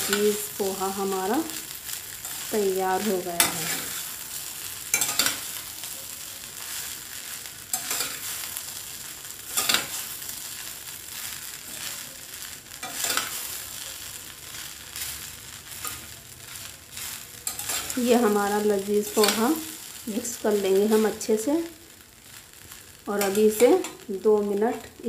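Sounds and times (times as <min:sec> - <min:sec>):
food sizzling: 0:00.0 - 0:25.0.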